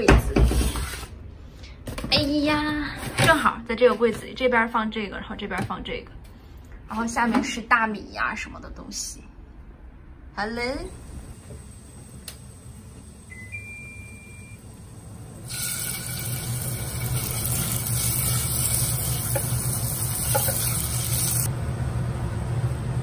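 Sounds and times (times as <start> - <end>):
short high beep: 13.3 - 14.6
meat sizzling in hot oil: 15.4 - 21.5.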